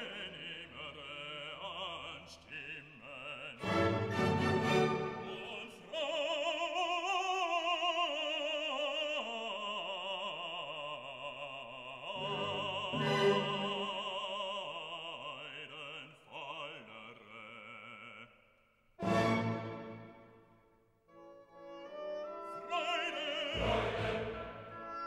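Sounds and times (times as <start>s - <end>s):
operatic classical music: 0.0s - 2.2s, 3.3s - 8.4s, 12.1s - 15.0s, 19.0s - 25.0s.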